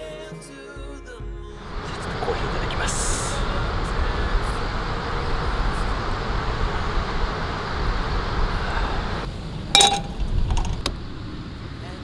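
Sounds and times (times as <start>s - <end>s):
low rumble: 1.6s - 12.0s
outdoor rushing noise: 1.6s - 12.0s
sharp ringing clink: 9.8s - 10.2s.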